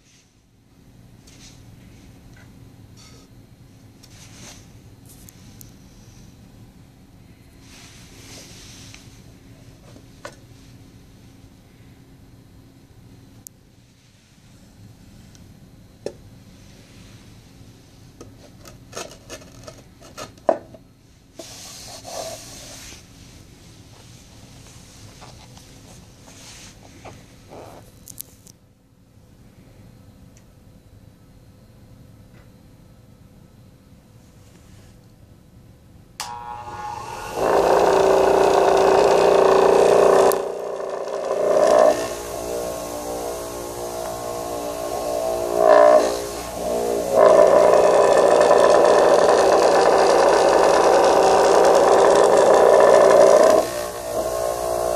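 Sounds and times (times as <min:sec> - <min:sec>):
disc sander motor humming: 0:36.2 - 0:54.9
wood scraping on wood: 0:36.4 - 0:54.9.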